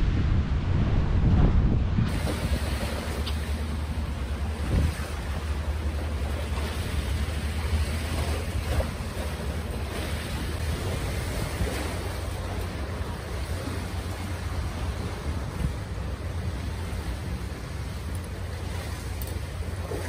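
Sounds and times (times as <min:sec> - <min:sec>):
wind blowing over microphone: 0:00.0 - 0:05.8.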